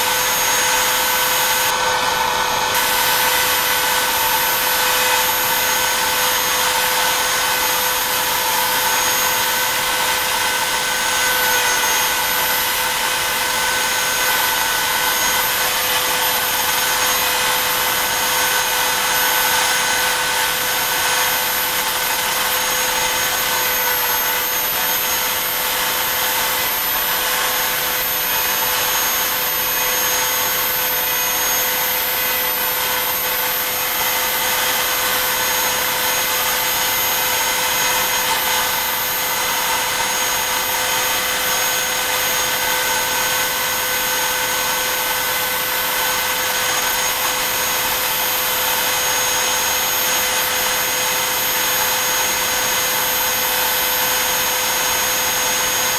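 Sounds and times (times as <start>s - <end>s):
bit cutting wood hiss: 0.0s - 2.0s, 2.7s - 43.4s
router spindle whine: 0.0s - 55.9s.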